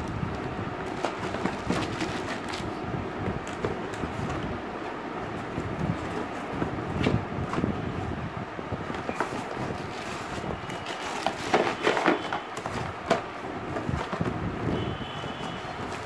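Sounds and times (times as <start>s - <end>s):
steady background noise: 0.0s - 16.0s
cardboard and plastic wrap rustling: 0.1s - 8.2s, 8.8s - 16.0s.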